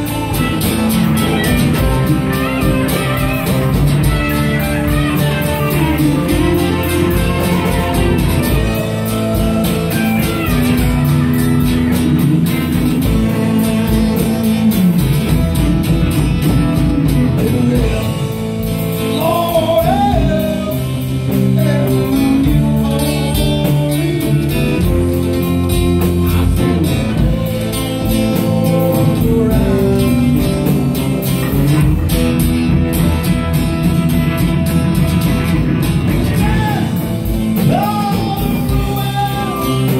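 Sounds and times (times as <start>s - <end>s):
drum kit: 0.0s - 39.9s
electric guitars: 0.0s - 39.9s
person singing: 12.0s - 15.6s, 16.9s - 32.3s, 36.2s - 39.9s.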